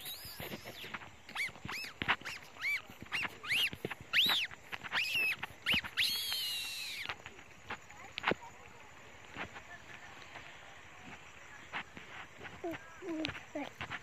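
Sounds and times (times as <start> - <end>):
bird calling: 0.0 - 7.3.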